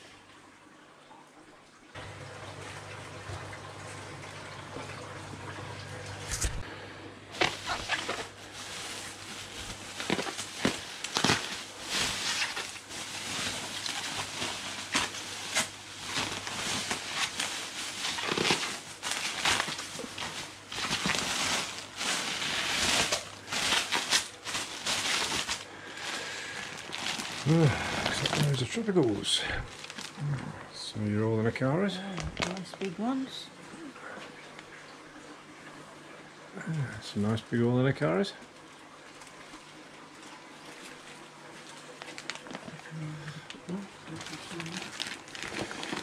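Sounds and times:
low steady hum: 0.0s - 46.0s
water sloshing: 7.3s - 28.8s
plastic bags crinkling: 7.3s - 30.4s, 31.9s - 33.3s, 40.7s - 46.0s.

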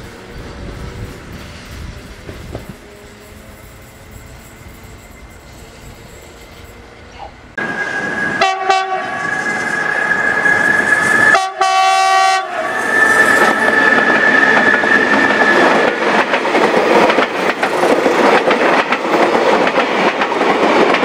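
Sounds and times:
steady high tone: 3.3s - 16.3s
train horn blast: 7.6s - 9.6s, 11.3s - 13.1s
train wheels clattering over rail joints: 13.4s - 21.0s.

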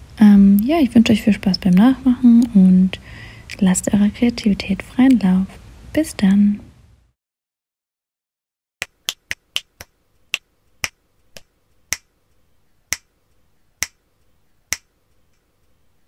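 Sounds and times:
sharp clicks: 14.7s - 15.5s.

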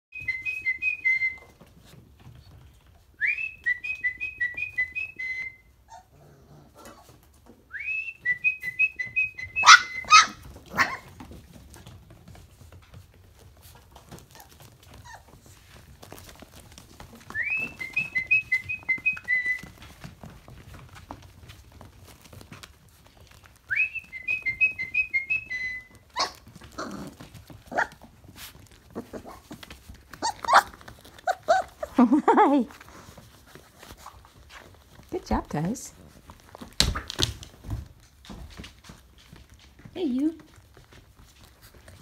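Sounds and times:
puppies yelping: 9.5s - 11.1s, 26.1s - 28.0s, 28.8s - 32.0s
whistled call: 17.3s - 19.7s, 23.7s - 26.0s.

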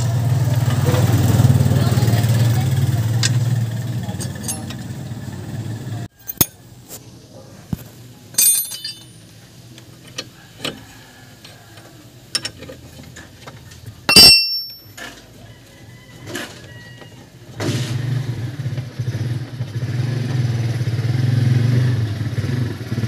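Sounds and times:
metal tools clinking: 4.1s - 4.8s, 6.2s - 6.6s, 8.3s - 9.3s, 14.1s - 15.1s.

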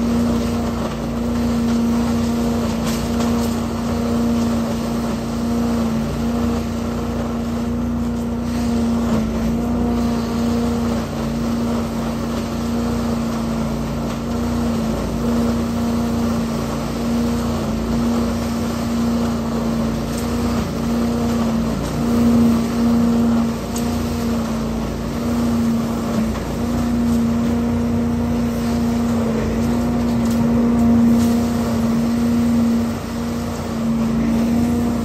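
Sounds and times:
leaf vacuum engine droning: 0.0s - 35.0s.

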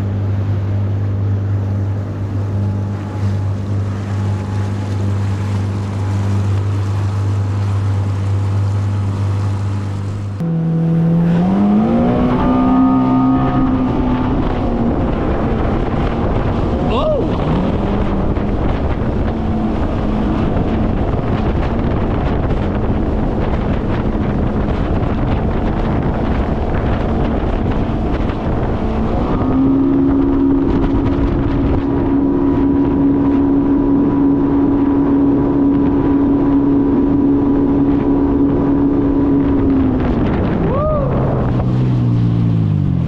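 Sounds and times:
jet ski engine running: 0.0s - 43.0s
wind noise on microphone: 0.0s - 43.0s.

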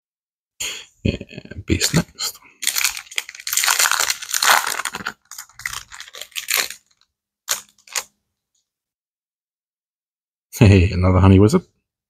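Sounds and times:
foil wrapper crinkling: 2.6s - 8.1s.

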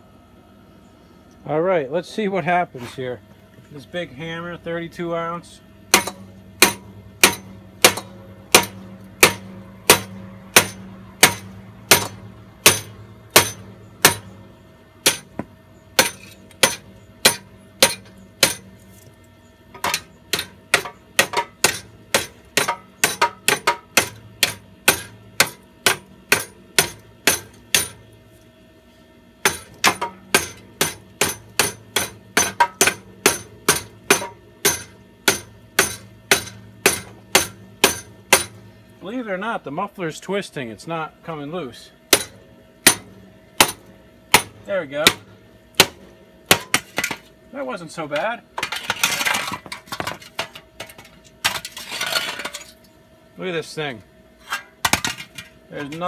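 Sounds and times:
hammer striking metal muffler: 5.9s - 18.7s, 19.8s - 28.0s, 29.4s - 38.6s, 42.1s - 47.3s.

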